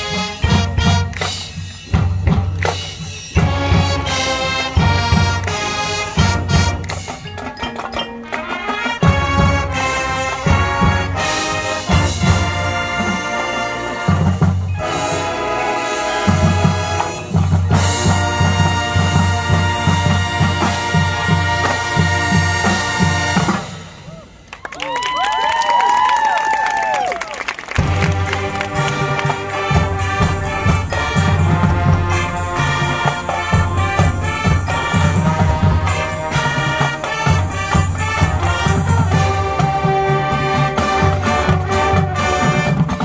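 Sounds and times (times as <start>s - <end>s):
drum beat: 0.0s - 8.2s, 27.8s - 43.0s
marching band playing rock: 0.0s - 24.7s, 27.4s - 43.0s.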